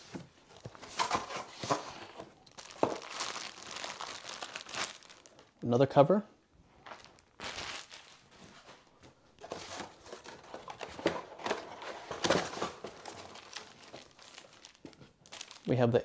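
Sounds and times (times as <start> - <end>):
cardboard rustling and scraping: 0.0 - 3.1, 7.0 - 15.5
plastic wrap crinkling: 0.5 - 5.6, 6.8 - 15.9.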